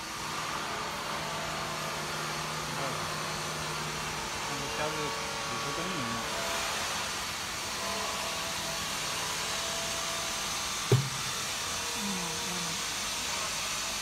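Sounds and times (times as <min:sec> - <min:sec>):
sharp thump: 0:10.9 - 0:11.4.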